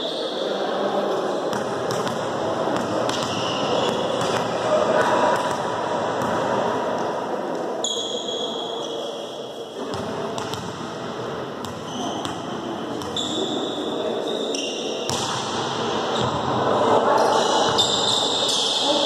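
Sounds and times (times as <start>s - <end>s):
players' voices: 0.0s - 19.0s
volleyball strikes: 1.6s - 7.1s, 15.1s - 16.5s
shoe squeaks: 3.2s - 4.2s, 7.8s - 9.2s, 11.8s - 12.4s, 13.1s - 15.0s, 17.4s - 19.0s.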